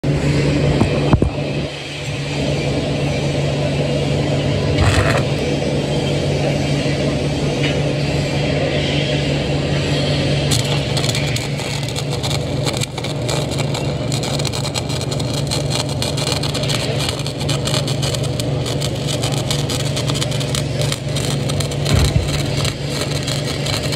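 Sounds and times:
steady low hum: 0.0s - 23.9s
welding arc crackling: 4.8s - 5.5s, 10.1s - 23.9s.

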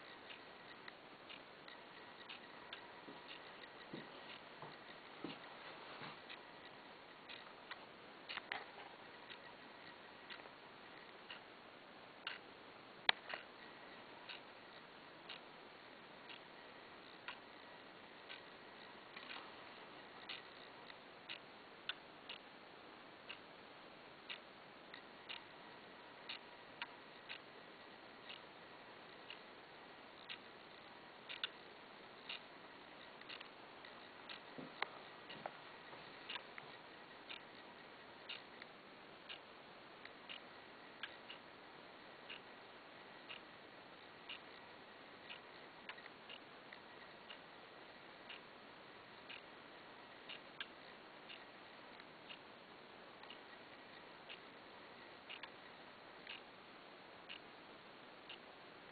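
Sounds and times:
mantel clock ticking: 0.0s - 5.5s, 6.2s - 22.4s, 26.2s - 41.5s
sharp clock clicks: 30.2s - 32.5s, 33.2s - 34.9s
faint clicks: 30.2s - 38.7s, 55.3s - 55.6s, 56.2s - 56.5s.

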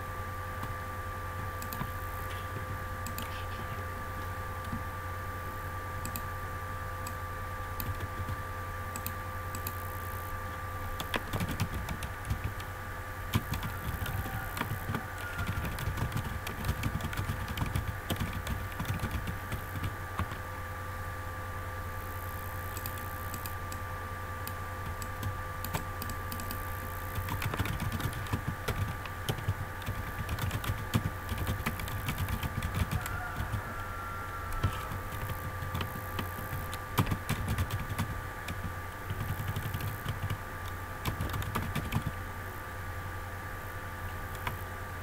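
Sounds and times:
typing on computer keyboard: 1.6s - 3.4s, 7.8s - 8.4s, 11.0s - 12.7s, 13.3s - 20.4s, 22.7s - 23.6s, 24.8s - 33.6s, 34.5s - 40.4s, 41.0s - 42.2s.

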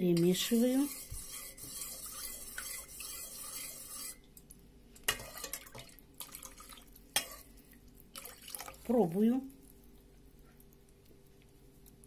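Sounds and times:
ladle stirring broth in pot: 0.1s - 8.9s
broth dripping into pot: 1.9s - 9.0s.

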